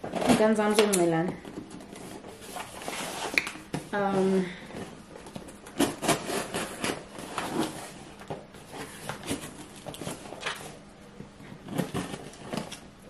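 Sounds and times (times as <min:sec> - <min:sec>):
cardboard scraping and ripping: 0:05.8 - 0:10.8.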